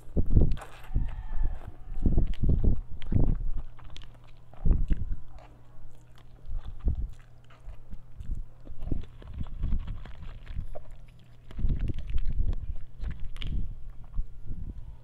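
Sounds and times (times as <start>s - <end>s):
steady low hum: 0.0s - 15.0s
chewing wet mouth noises: 0.1s - 15.0s
noodles slurped: 2.2s - 14.1s.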